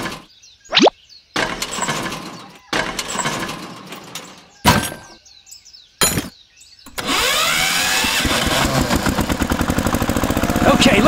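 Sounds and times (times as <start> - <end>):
engine starting and idling: 1.4 - 4.2, 6.9 - 11.0.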